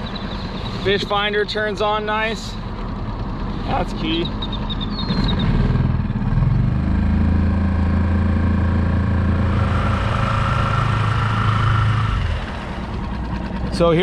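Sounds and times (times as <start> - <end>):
outboard motor running: 0.0 - 14.0
high whine: 7.3 - 14.0.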